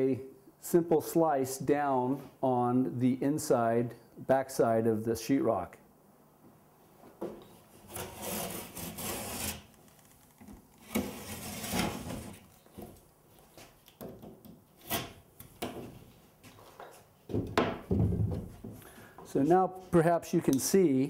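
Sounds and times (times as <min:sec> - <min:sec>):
utility knife scraping through drywall: 0:07.8 - 0:09.8, 0:10.8 - 0:12.5, 0:14.8 - 0:15.2.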